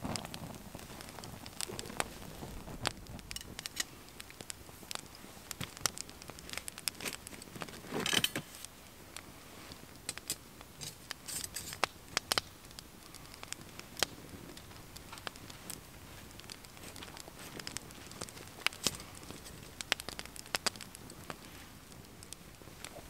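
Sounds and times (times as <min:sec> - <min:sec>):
wood fire crackling: 0:00.0 - 0:23.0.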